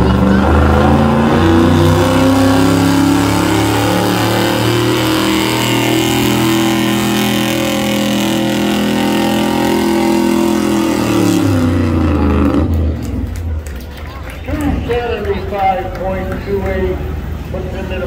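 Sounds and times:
truck engine revving hard: 0.0s - 13.8s.

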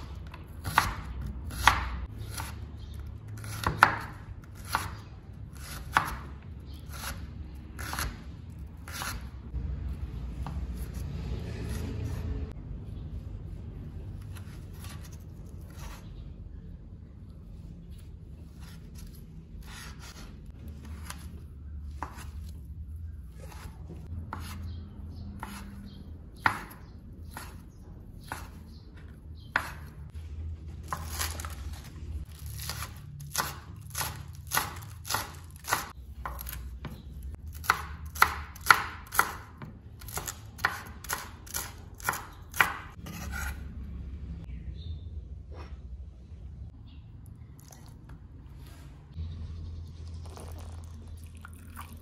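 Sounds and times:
knife chopping on cutting board: 0.6s - 2.6s, 3.4s - 5.0s, 6.9s - 8.2s, 22.0s - 22.4s, 23.4s - 24.7s, 25.4s - 25.8s, 26.4s - 27.6s, 28.2s - 29.9s, 32.6s - 37.0s, 37.6s - 43.6s
knife slicing on cutting board: 42.1s - 43.6s.

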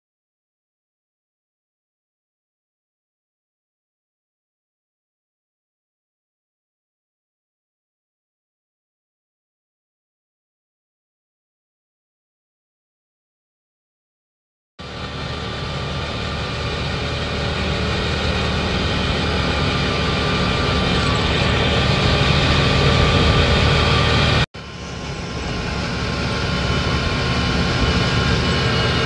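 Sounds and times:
buggy engine and driving noise: 14.8s - 29.0s.

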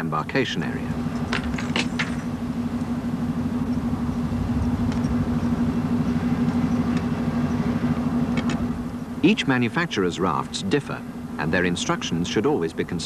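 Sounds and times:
machinery hum: 0.0s - 13.0s.

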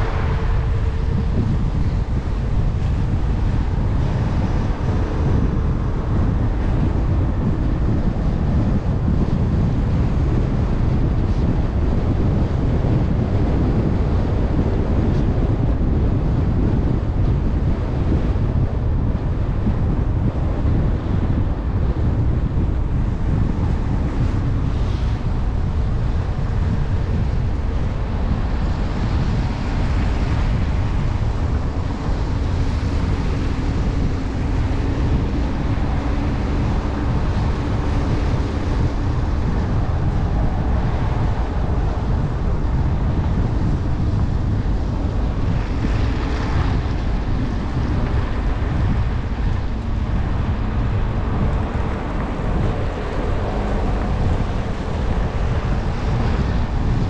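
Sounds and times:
faint engine hum: 0.0s - 57.0s
tyre and road noise: 0.0s - 57.0s
wind rushing over microphone: 0.0s - 57.0s.

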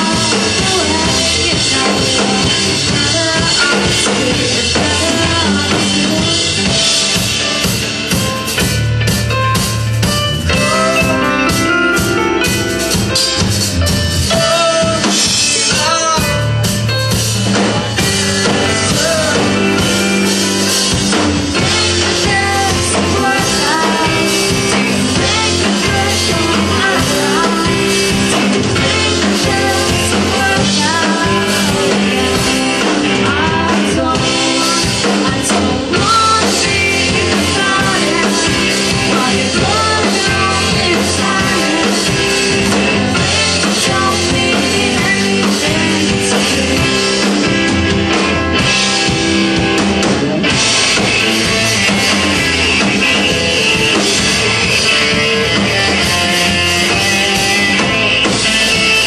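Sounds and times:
man singing lead vocals: 0.0s - 7.1s, 10.4s - 12.7s, 14.2s - 20.7s, 21.5s - 48.0s, 53.9s - 59.0s
bass guitar: 0.0s - 59.0s
drum kit: 0.0s - 59.0s
electric guitar: 0.0s - 59.0s.

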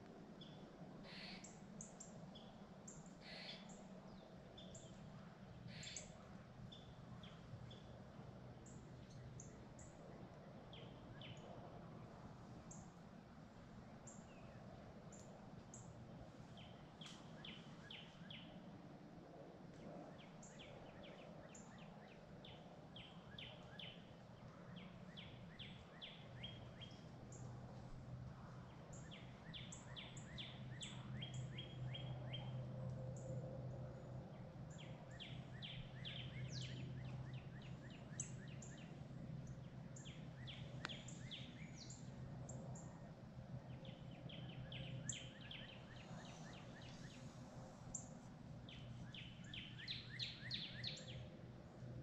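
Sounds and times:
faint low hum: 0.0s - 52.0s
birds chirping: 34.7s - 42.8s, 47.9s - 51.3s.

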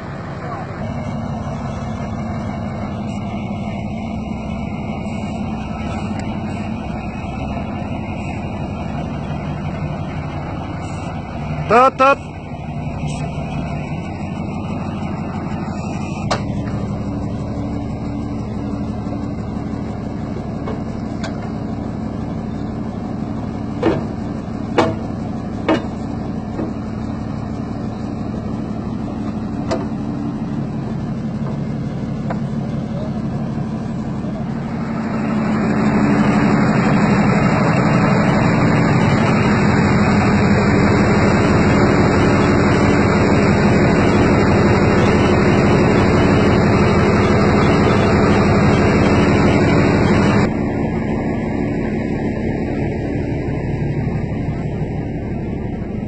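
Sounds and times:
truck engine idling: 0.0s - 56.0s
sharp knocks: 24.8s - 26.0s.

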